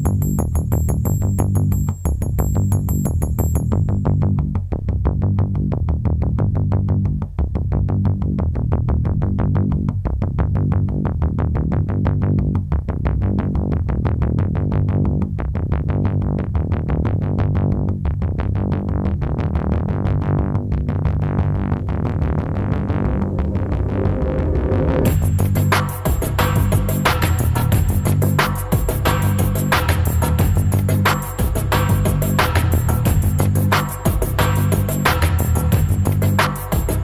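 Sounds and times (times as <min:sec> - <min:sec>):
electronic music with fast beat: 0:00.0 - 0:04.6, 0:19.8 - 0:37.0.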